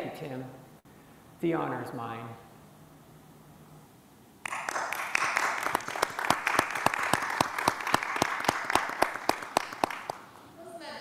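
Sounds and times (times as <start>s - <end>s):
people applauding: 4.4s - 10.3s.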